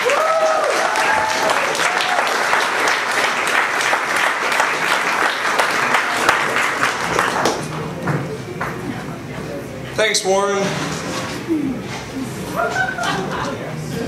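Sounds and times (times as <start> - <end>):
people cheering: 0.0 - 7.5
audience applauding: 0.0 - 7.8.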